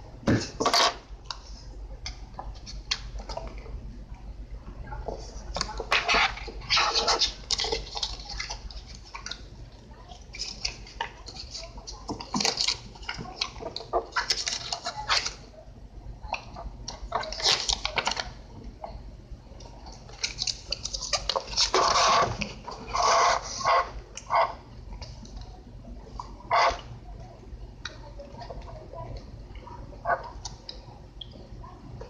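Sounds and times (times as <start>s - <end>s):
paper rustling and crinkling: 10.0s - 15.4s, 17.1s - 18.3s, 20.0s - 23.6s.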